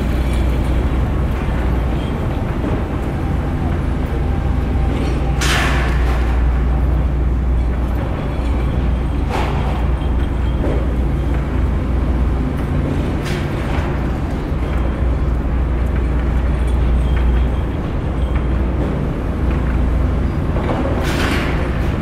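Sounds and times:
machinery engine droning: 0.0 - 22.0.

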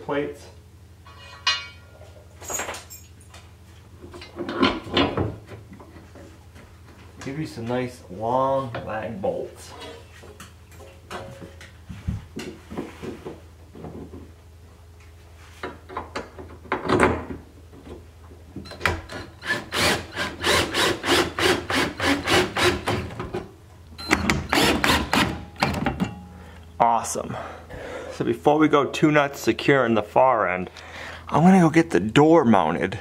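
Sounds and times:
drill driving bolts: 18.8 - 23.2, 24.1 - 25.9.

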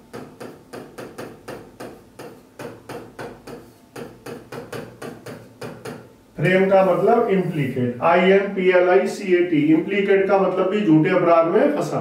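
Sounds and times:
pen tapping on a screen: 0.0 - 6.1.

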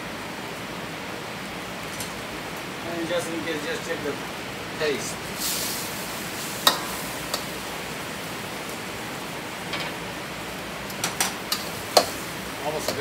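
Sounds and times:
gas burner rushing: 4.8 - 13.0.

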